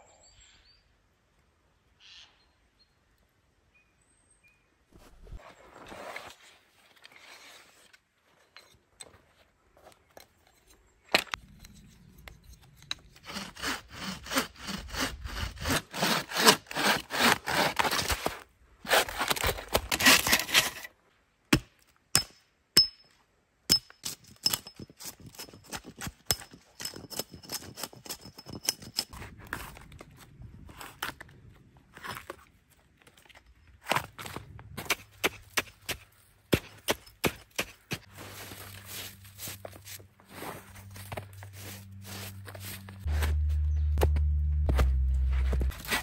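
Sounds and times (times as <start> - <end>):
hand saw cutting wood: 13.1 - 20.9.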